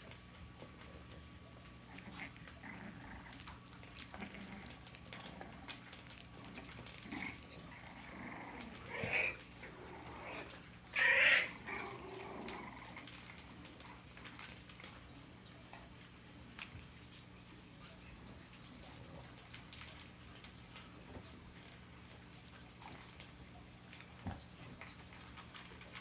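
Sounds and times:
puppies growling: 0.0 - 17.2, 18.1 - 26.0
puppy yelps: 10.9 - 11.6.

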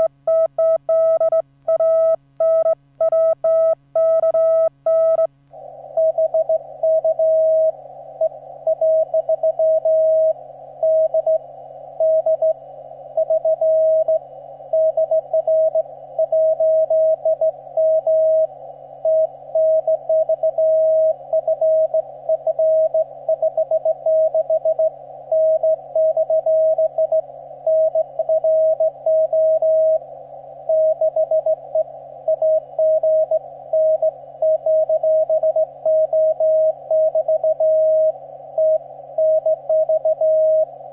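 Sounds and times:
morse code tone: 0.0 - 5.3, 30.7 - 40.7
steady low hum: 0.0 - 40.9.

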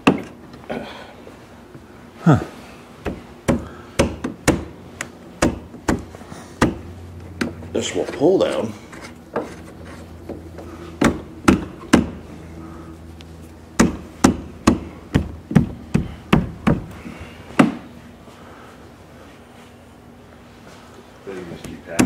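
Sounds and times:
knocks on windshield frame: 3.0 - 4.7, 5.4 - 6.8, 11.0 - 12.2, 13.8 - 16.9.

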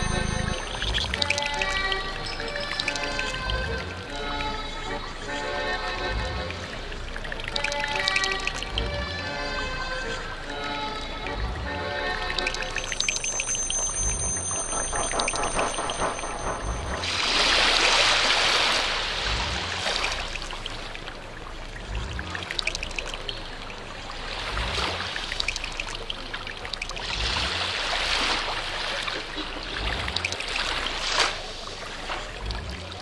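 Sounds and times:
low pulses: 0.0 - 28.8
rushing noise: 12.1 - 20.8.

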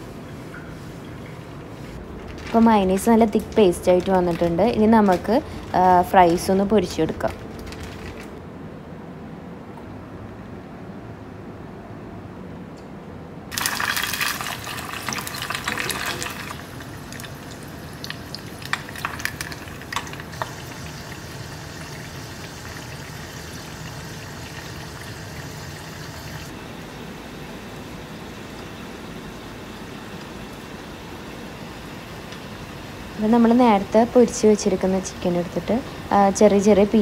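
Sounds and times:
fries sizzling in hot oil: 13.5 - 26.5.

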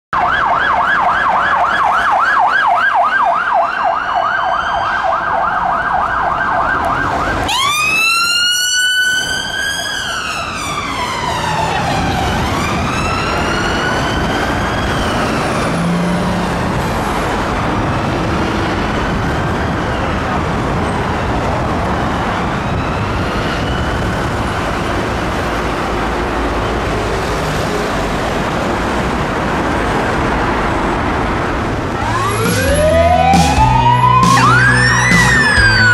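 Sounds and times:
ambulance siren wail: 0.1 - 28.4, 29.9 - 35.9
road traffic noise: 0.1 - 35.9
police siren yelp: 0.2 - 16.6, 31.8 - 35.9.

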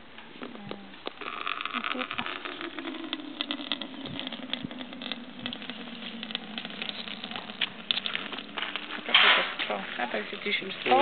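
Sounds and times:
wind buffeting microphone: 3.8 - 5.9.

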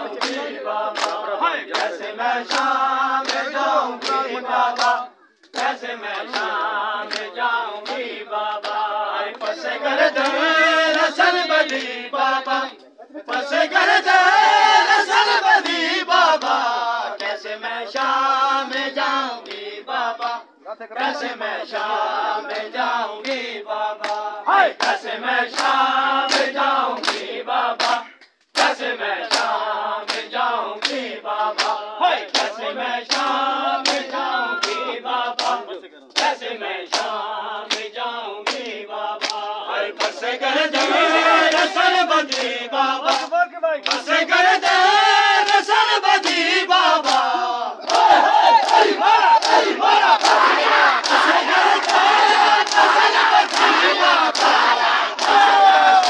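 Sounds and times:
men chanting together: 0.0 - 56.0
hand slaps on bare chests: 0.1 - 9.6, 24.0 - 34.8, 35.4 - 35.6, 36.2 - 41.7, 42.3 - 44.1, 46.2 - 56.0.

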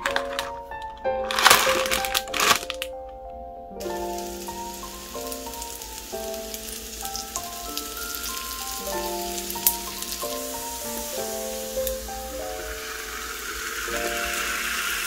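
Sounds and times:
background music with simple melody: 0.0 - 15.0
batter sizzling in waffle maker: 3.8 - 15.0.

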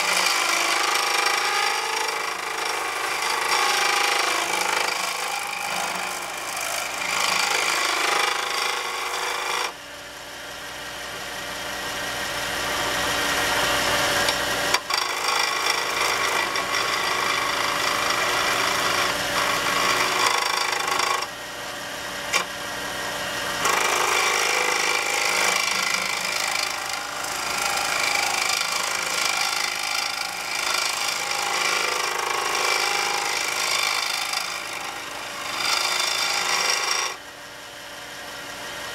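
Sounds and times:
chisel scraping wood on lathe: 0.0 - 9.7, 13.6 - 21.3, 23.6 - 37.2
lathe running hum: 0.0 - 38.9.

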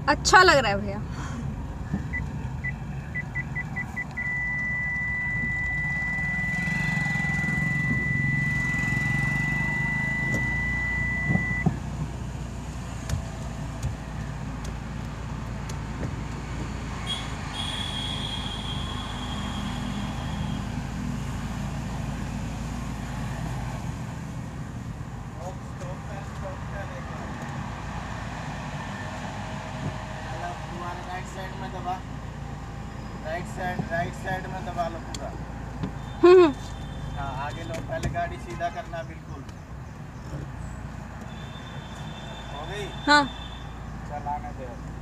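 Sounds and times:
car engine running low: 1.8 - 17.0
parking sensor beeping: 2.1 - 11.7
high steady tone: 2.6 - 11.6.

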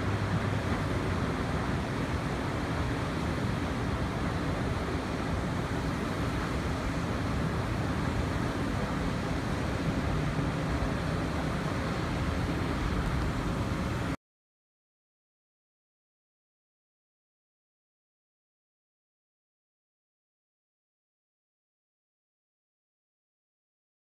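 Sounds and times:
distant traffic hum: 0.0 - 14.2
wind buffeting microphone: 7.0 - 14.2.

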